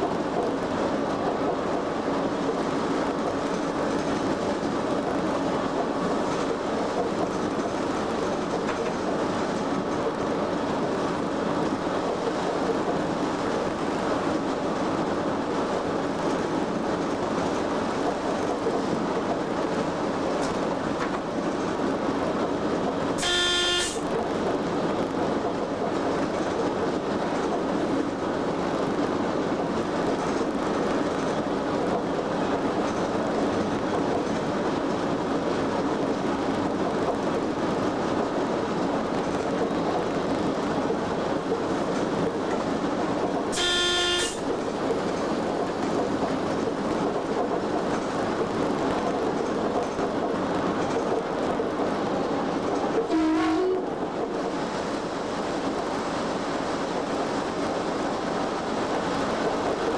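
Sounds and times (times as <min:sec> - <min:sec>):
locomotive running and rail noise: 0:00.0 - 0:59.9
brief pitched signal: 0:23.2 - 0:24.0, 0:43.6 - 0:44.4.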